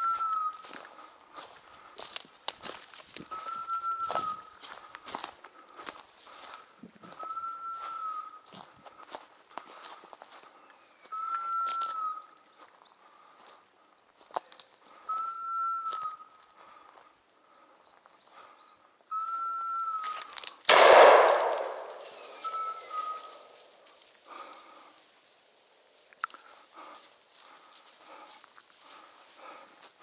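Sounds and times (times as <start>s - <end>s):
footsteps snapping twigs: 0.2s - 3.4s, 14.2s - 14.8s, 20.0s - 25.0s
shotgun shot echoing: 20.7s - 22.8s.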